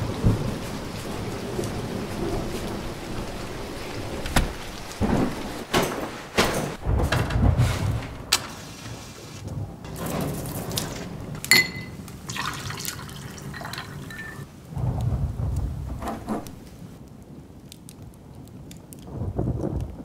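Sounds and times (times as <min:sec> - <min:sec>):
rain: 0:00.0 - 0:20.0
thunder rumbling: 0:00.0 - 0:20.0
sharp ringing clink: 0:11.5 - 0:12.0.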